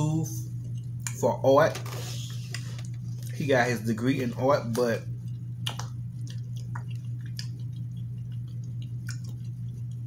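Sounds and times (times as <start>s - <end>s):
steady low hum: 0.0s - 10.0s
chewing with wet mouth clicks: 0.5s - 1.2s, 4.6s - 10.0s.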